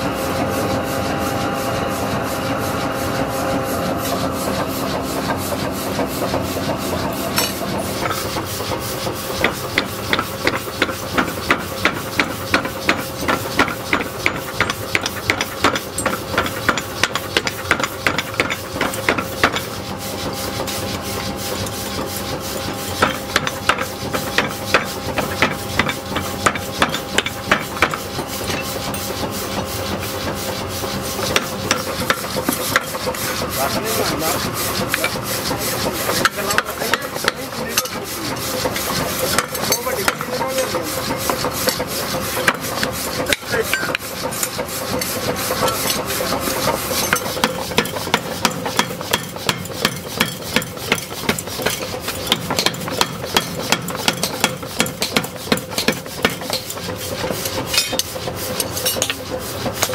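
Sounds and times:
steady machine hum: 0.0 - 59.9.

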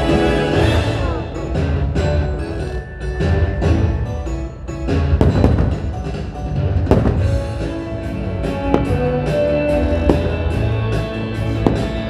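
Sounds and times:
music over loudspeakers: 0.0 - 12.0
firework shells bursting: 6.9 - 7.7, 8.6 - 9.4.

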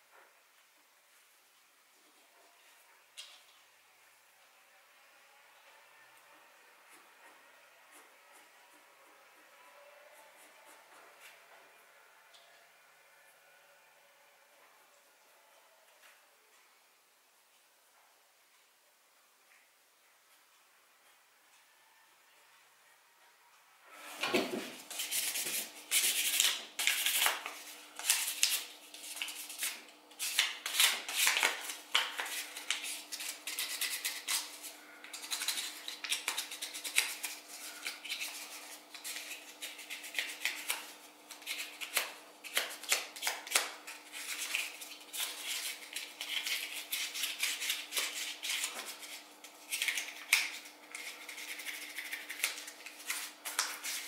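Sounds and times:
plastic sheath scraping and rubbing: 24.4 - 54.0.

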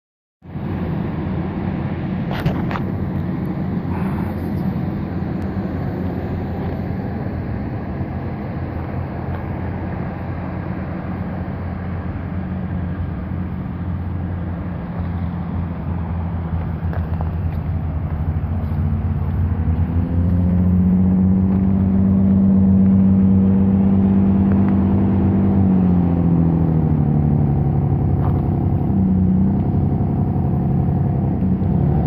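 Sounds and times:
truck engine and road noise: 0.4 - 32.0.

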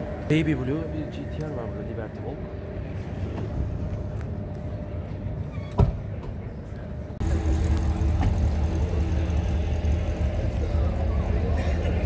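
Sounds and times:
car engines idling: 6.4 - 12.0.

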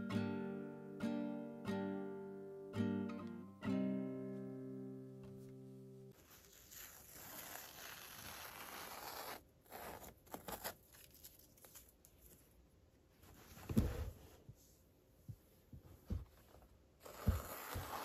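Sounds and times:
tape being peeled off: 6.2 - 12.4.

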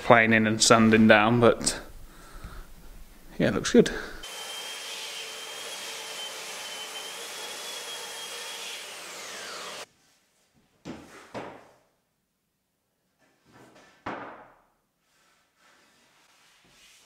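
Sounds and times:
belt sander whining: 4.2 - 9.9.

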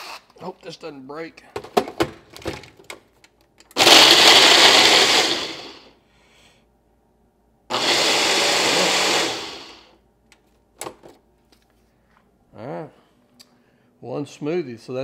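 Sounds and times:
blender running: 3.8 - 5.9, 7.7 - 9.9.

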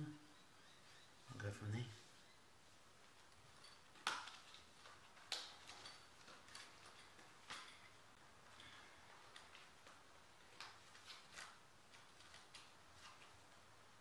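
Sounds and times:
keys being handled: 3.2 - 9.8.

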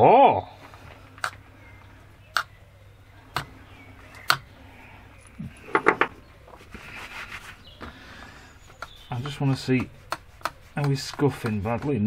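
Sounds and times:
soft rustle: 6.4 - 11.3.

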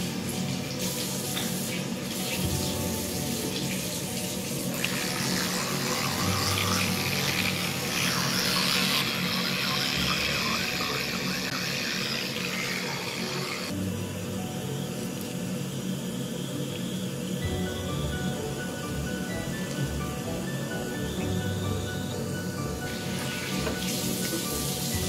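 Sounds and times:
background music: 0.0 - 12.0, 13.6 - 25.0
tap running into sink: 23.2 - 24.4.

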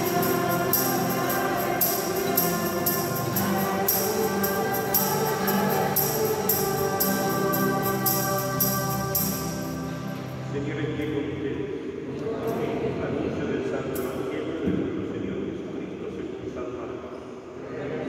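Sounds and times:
voices singing: 0.0 - 10.2, 12.1 - 13.3
tambourine shaken: 0.0 - 10.4
instrumental accompaniment: 0.0 - 10.7.

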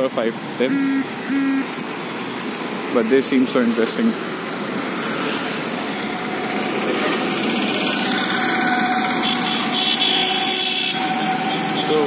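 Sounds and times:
auto-rickshaw engine: 0.0 - 12.0
motor scooters passing: 4.6 - 12.0.

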